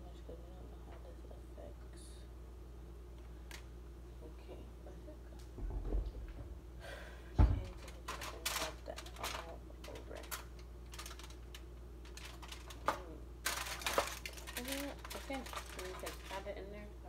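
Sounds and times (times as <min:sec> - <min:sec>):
loud thud in cabinet: 0:07.4 - 0:07.7.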